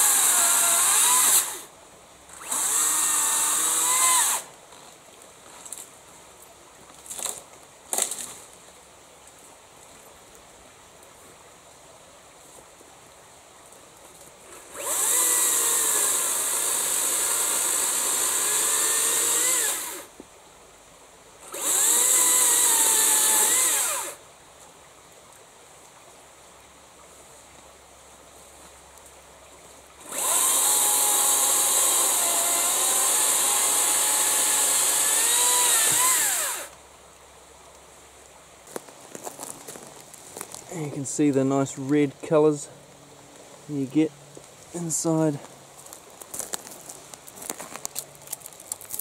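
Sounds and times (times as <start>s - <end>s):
battery chainsaw cutting log: 0.0s - 1.7s, 2.3s - 4.5s, 14.5s - 20.1s, 21.4s - 24.2s, 30.0s - 36.8s.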